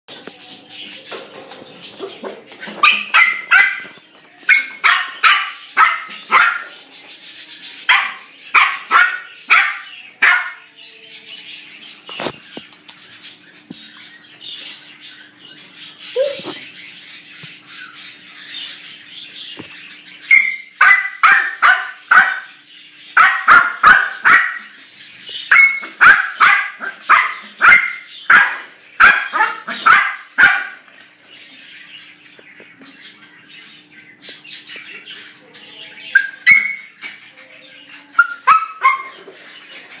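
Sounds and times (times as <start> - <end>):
puppy barking in high yaps: 20.3 - 22.5, 23.2 - 24.7, 25.5 - 30.8, 38.2 - 39.2.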